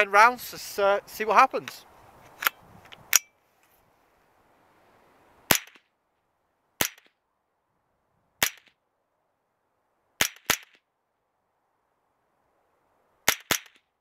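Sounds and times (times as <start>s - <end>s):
rifle shots: 10.2s - 10.8s.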